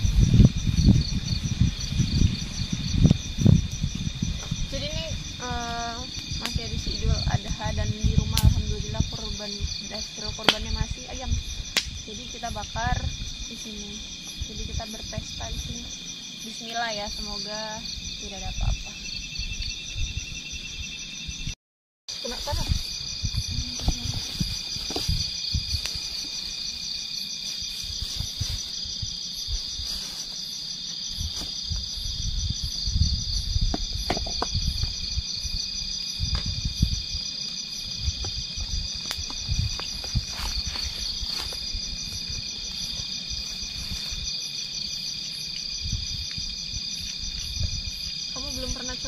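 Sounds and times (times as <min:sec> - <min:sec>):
crickets trilling: 0:00.0 - 0:49.0.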